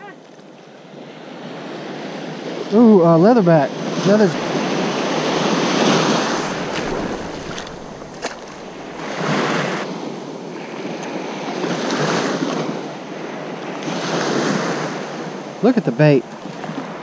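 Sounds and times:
small waves breaking on sand: 0.2 - 17.0.

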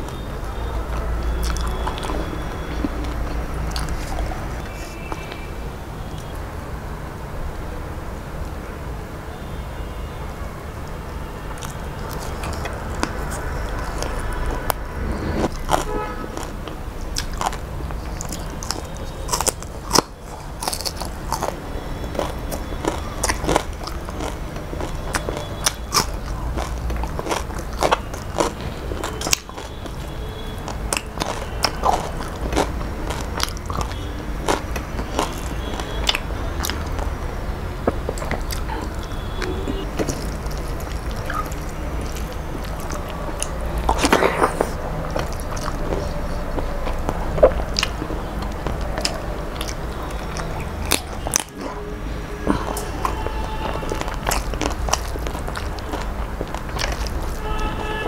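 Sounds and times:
person chewing and lip smacking: 0.0 - 6.4, 11.4 - 57.9.

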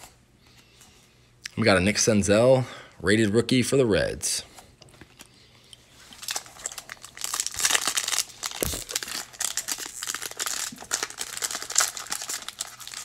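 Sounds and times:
foil wrapper crinkling: 6.1 - 13.0
wrapper tearing open: 6.2 - 13.0.

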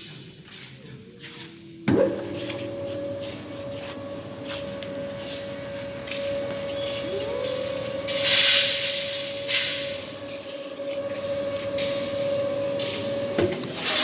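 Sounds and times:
mixing motor whine: 1.8 - 14.0.

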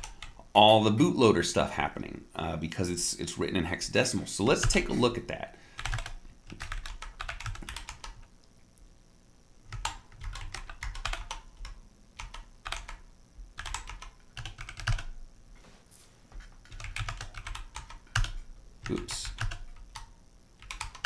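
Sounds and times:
computer keyboard typing: 0.0 - 0.4, 5.8 - 8.3, 9.7 - 15.2, 16.4 - 21.0.

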